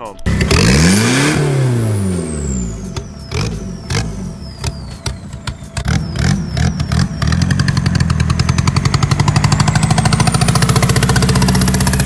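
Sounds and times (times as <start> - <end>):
diesel engine pulling hard: 0.3 - 12.0
turbo whistle: 2.0 - 11.6
knocks and clatter: 4.6 - 6.4.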